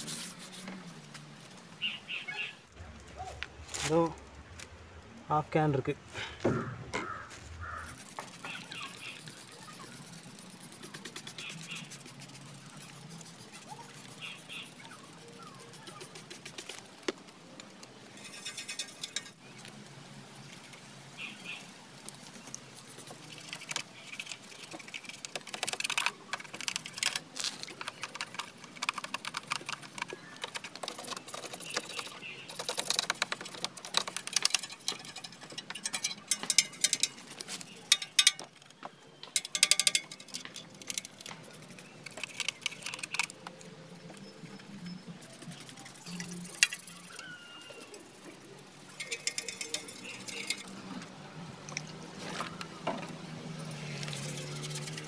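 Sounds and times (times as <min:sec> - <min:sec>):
toothbrush scrubbing: 0:00.0 - 0:00.8, 0:07.6 - 0:17.0, 0:22.7 - 0:38.3, 0:39.4 - 0:43.3, 0:45.0 - 0:50.8, 0:53.5 - 0:55.0
spray bottle squirts: 0:07.7 - 0:16.9.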